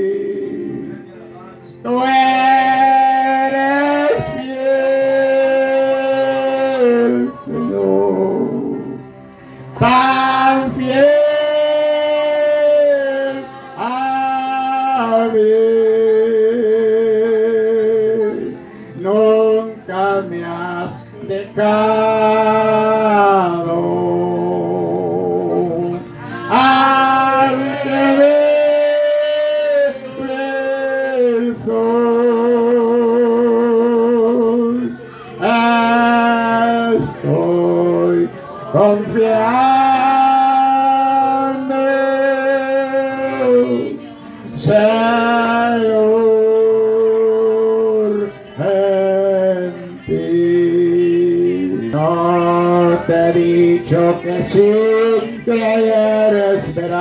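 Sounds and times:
man singing into microphone: 0:00.0 - 0:57.0.

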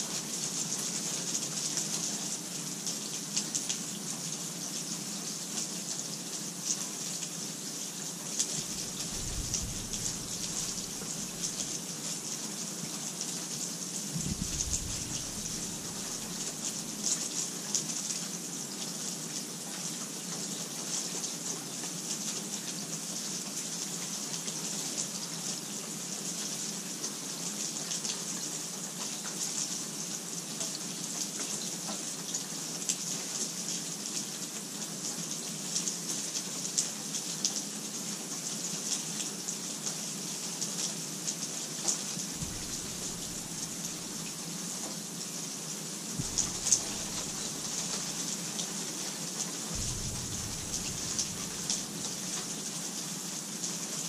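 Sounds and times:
steady rain hiss: 0:00.0 - 0:54.0
raindrops ticking: 0:08.5 - 0:11.8, 0:14.1 - 0:17.0, 0:42.4 - 0:44.4, 0:46.2 - 0:48.6, 0:49.7 - 0:52.5.

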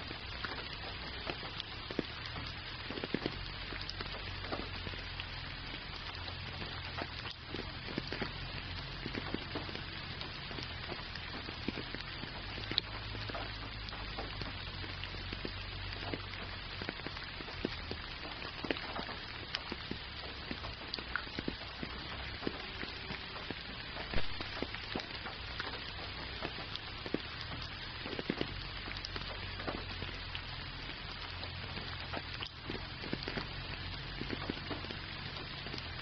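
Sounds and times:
raindrops ticking close by: 0:00.0 - 0:36.0
steady rain falling: 0:00.0 - 0:36.0.

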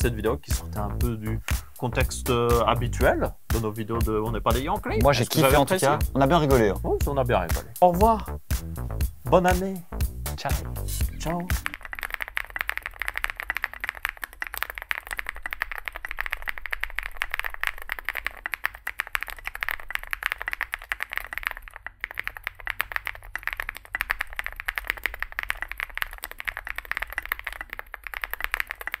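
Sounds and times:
dense crackle of rapid clicks: 0:11.2 - 0:29.0.

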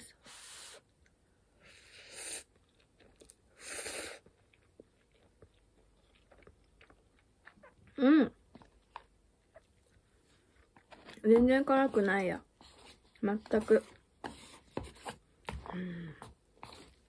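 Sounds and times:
faint chewing: 0:01.0 - 0:17.0
person slurping noodles: 0:01.6 - 0:02.6, 0:03.5 - 0:04.4.

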